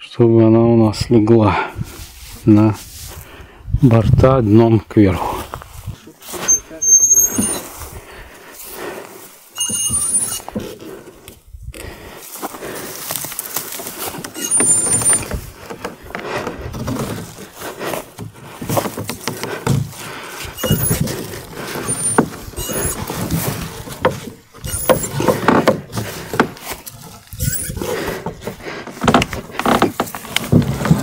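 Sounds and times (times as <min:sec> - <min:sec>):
short high squeaks: 0:06.4 - 0:07.7, 0:09.5 - 0:10.6, 0:14.3 - 0:15.4, 0:20.6 - 0:21.0, 0:21.8 - 0:23.3, 0:24.6 - 0:25.3, 0:27.3 - 0:27.9
wooden hull knocking and creaking: 0:13.1 - 0:31.0.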